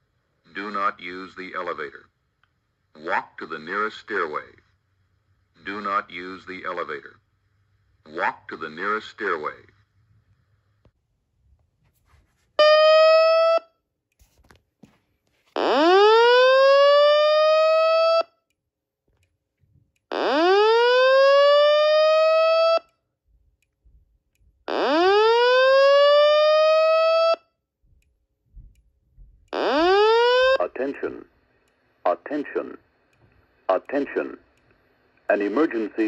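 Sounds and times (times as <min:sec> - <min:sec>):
fire alarm whooping tone: 0:12.6 - 0:13.8, 0:15.6 - 0:18.4, 0:20.1 - 0:22.9, 0:24.7 - 0:27.5, 0:29.6 - 0:30.6.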